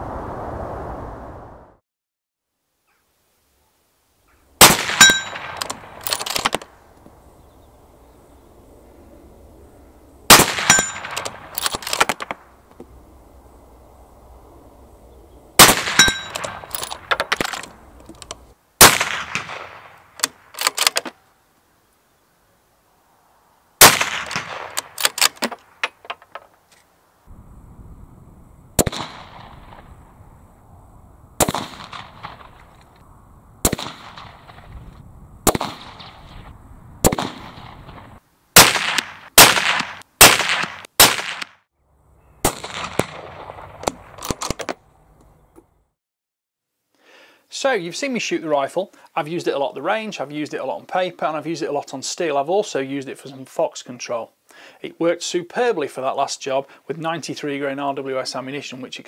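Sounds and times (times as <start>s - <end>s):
rifle shots: 4.6s - 6.7s, 10.3s - 12.4s, 15.6s - 17.7s, 18.8s - 21.1s, 23.8s - 25.7s, 28.8s - 30.0s, 31.4s - 32.7s, 33.6s - 34.8s, 35.4s - 41.5s, 42.4s - 44.6s.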